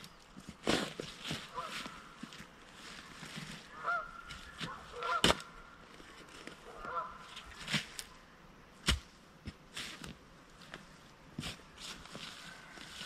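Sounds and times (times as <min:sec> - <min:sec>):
shovel chopping into soil: 0:00.6 - 0:01.4, 0:08.8 - 0:09.2
bird calls: 0:02.9 - 0:08.4.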